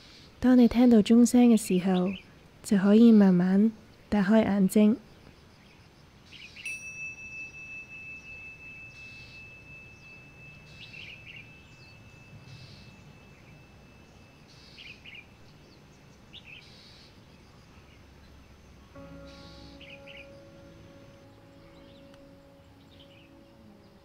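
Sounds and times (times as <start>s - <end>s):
birds chirping: 4.2s - 24.0s
meditation bell ringing: 6.6s - 15.8s, 19.0s - 24.0s.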